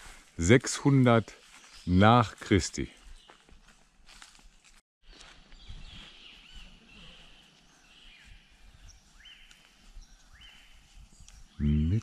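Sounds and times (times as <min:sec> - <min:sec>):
birds calling: 0:05.1 - 0:12.0.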